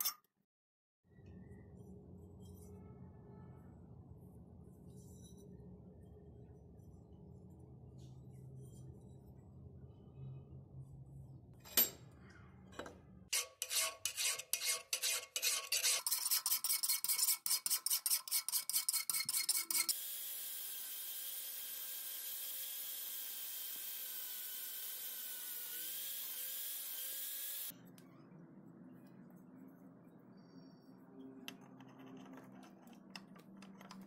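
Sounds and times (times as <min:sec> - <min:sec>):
hand file rasping on steel: 0:13.3 - 0:20.0
angle grinder whining: 0:19.9 - 0:27.7.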